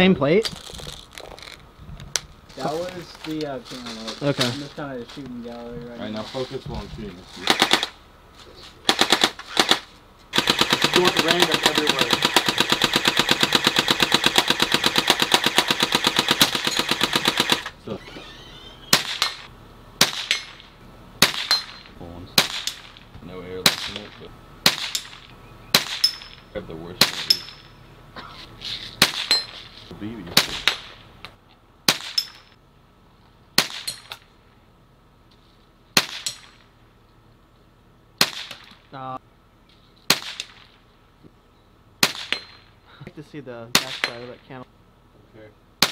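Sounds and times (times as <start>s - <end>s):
bb gun firing full-auto: 7.4s - 8.0s, 8.9s - 17.7s, 18.9s - 20.6s, 21.2s - 21.8s, 22.4s - 23.0s, 24.6s - 26.2s, 29.0s - 29.4s, 31.9s - 32.4s, 33.6s - 34.0s, 36.0s - 36.6s, 38.2s - 38.8s, 40.1s - 40.7s, 42.0s - 42.5s
pellets pinging steel targets: 10.4s - 17.7s, 18.9s - 23.0s, 23.6s - 27.8s, 29.0s - 29.7s, 30.4s - 31.1s, 31.9s - 32.6s, 33.6s - 34.3s, 36.0s - 36.7s, 42.0s - 42.8s, 43.7s - 44.4s.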